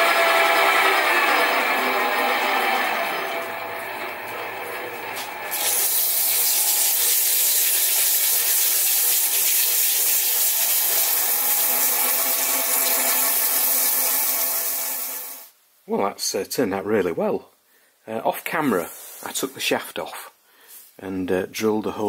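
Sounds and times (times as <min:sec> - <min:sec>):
metal lathe motor humming: 0:00.0 - 0:08.5, 0:10.1 - 0:15.4
abrasive paper hissing on metal: 0:05.5 - 0:15.5.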